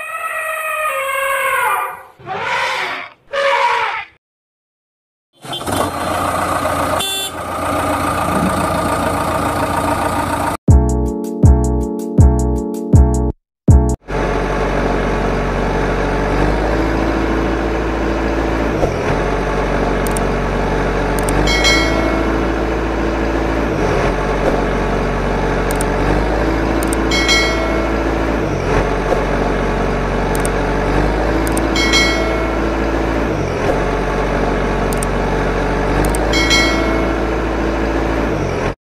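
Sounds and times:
truck engine rumble: 0:05.4 - 0:10.6, 0:14.0 - 0:38.8.

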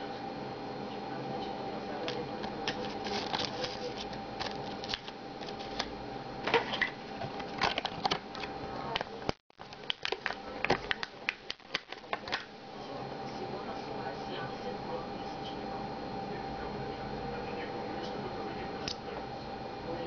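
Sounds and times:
plastic and paper crinkling: 0:02.1 - 0:05.9, 0:06.6 - 0:08.4, 0:09.0 - 0:12.5.

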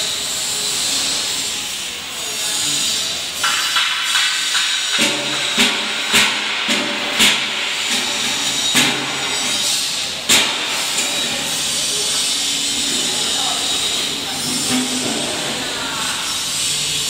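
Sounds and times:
welding hiss: 0:00.0 - 0:17.0.

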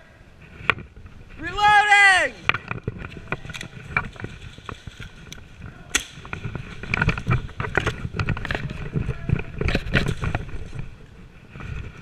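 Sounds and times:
sharp crack: 0:01.6 - 0:10.8.

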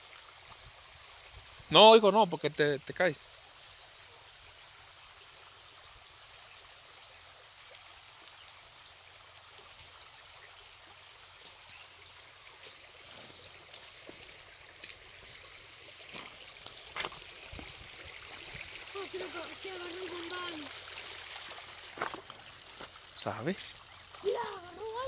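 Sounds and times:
rushing stream water: 0:00.0 - 0:25.0.

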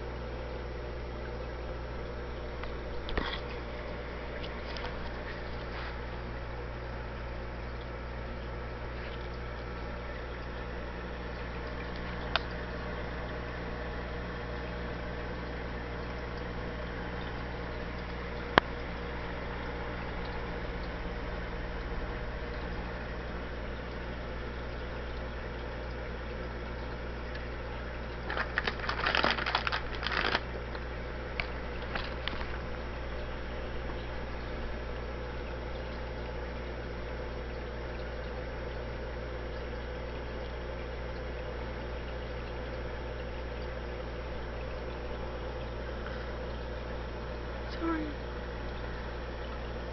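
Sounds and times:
low motor hum: 0:00.0 - 0:49.9
trickling water: 0:00.0 - 0:49.9
crackling noise: 0:27.0 - 0:36.1.

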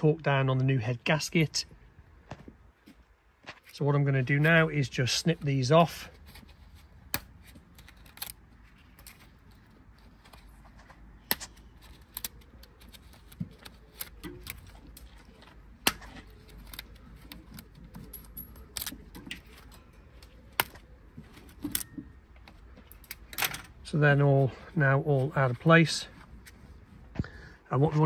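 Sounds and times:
small metallic clicks: 0:06.2 - 0:23.8.

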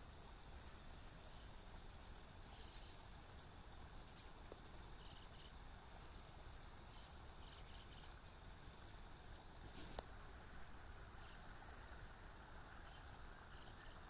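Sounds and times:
thin arched chirping call: 0:00.0 - 0:09.4, 0:10.8 - 0:14.0.

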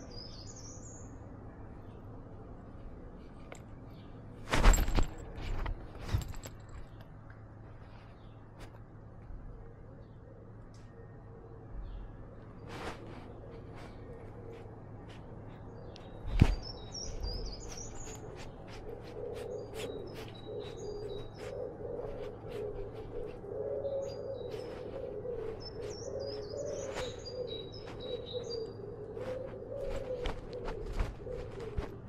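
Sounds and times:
light clicks and rustles: 0:02.7 - 0:09.5, 0:12.4 - 0:23.4, 0:24.5 - 0:32.0
songbird twittering: 0:13.8 - 0:31.9.

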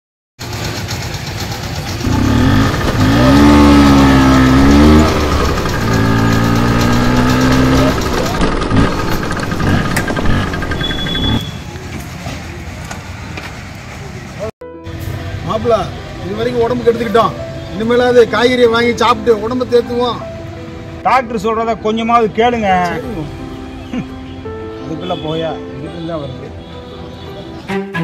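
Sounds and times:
motor scooter engine running: 0:00.4 - 0:11.4.

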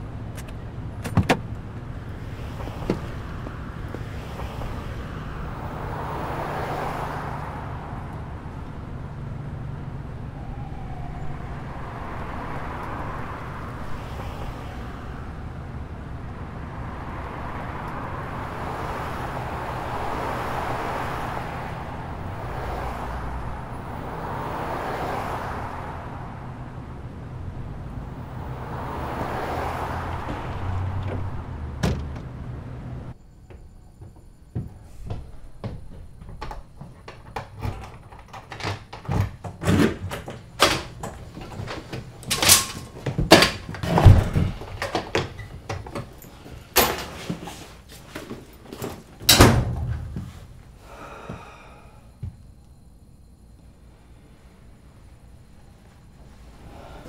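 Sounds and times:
cars passing on street: 0:00.0 - 0:57.0
door sounds: 0:00.3 - 0:01.6, 0:02.5 - 0:05.9, 0:28.3 - 0:50.6.

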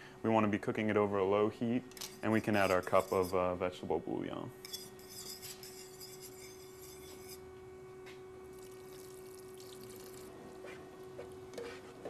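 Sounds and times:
liquid pouring into pan: 0:08.5 - 0:10.3.

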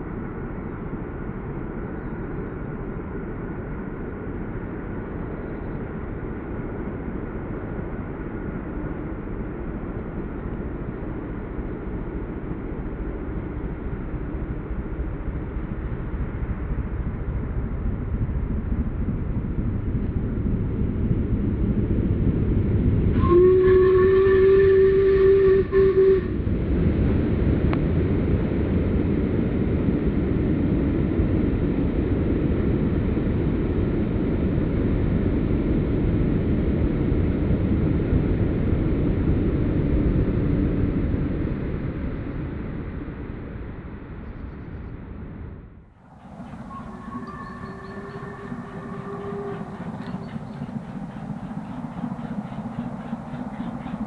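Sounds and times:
steam locomotive running: 0:21.7 - 0:27.6, 0:46.0 - 0:54.0
steam locomotive whistle: 0:23.1 - 0:26.4, 0:46.2 - 0:54.0.

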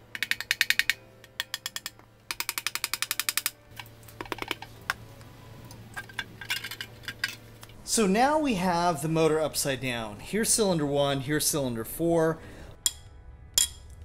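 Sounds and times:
hand ratchet clicking: 0:00.1 - 0:03.6
scattered knocks and ticks: 0:00.1 - 0:03.6.

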